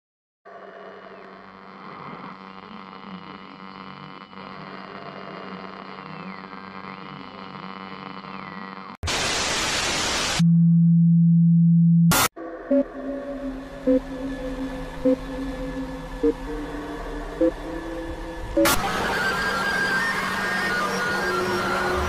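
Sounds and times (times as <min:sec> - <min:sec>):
burst of static: 0:01.6 - 0:04.7, 0:05.4 - 0:10.4
high tone sinking and climbing: 0:10.5 - 0:22.0
steady low hum: 0:10.5 - 0:22.0
eerie droning soundtrack: 0:12.3 - 0:22.0.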